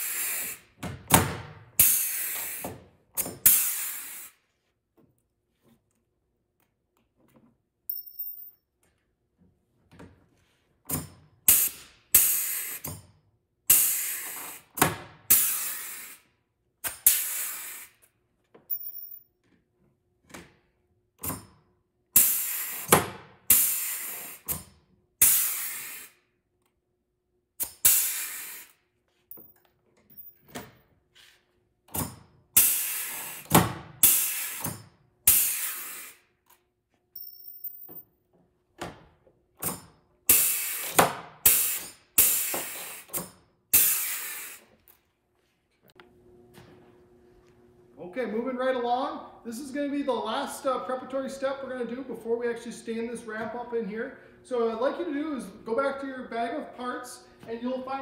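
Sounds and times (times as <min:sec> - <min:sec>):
pneumatic rivet gun air bursts: 0:00.0 - 0:00.8, 0:01.6 - 0:04.5, 0:10.9 - 0:18.2, 0:21.2 - 0:26.4, 0:27.6 - 0:29.0, 0:31.9 - 0:36.6, 0:39.6 - 0:44.8.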